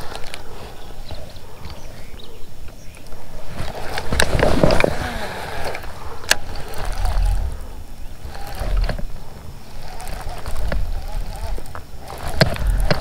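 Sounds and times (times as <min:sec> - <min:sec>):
fishing reel clicks: 0:03.9 - 0:13.0.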